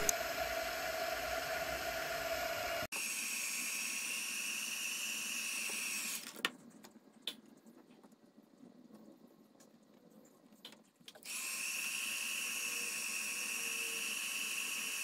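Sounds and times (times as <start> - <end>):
hot air gun blowing: 0.0 - 2.9.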